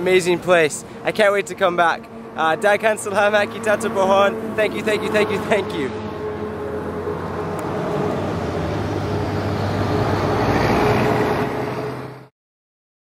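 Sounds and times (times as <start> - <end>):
vehicle engine hum and tyre noise: 0.0 - 12.3.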